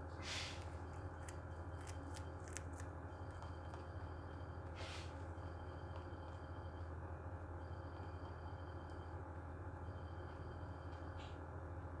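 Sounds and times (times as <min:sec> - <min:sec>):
steady low hum: 0:00.0 - 0:12.0
rabbit crunching carrot: 0:00.2 - 0:04.0.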